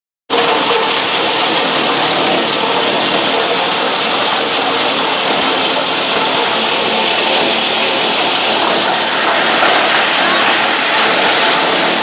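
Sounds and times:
wood chipping machinery din: 0.3s - 12.0s.

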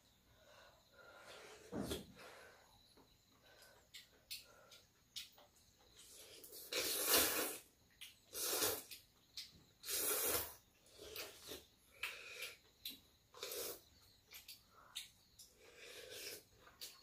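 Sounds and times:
slurping noodles: 6.0s - 7.7s, 8.3s - 9.0s, 9.8s - 12.5s.

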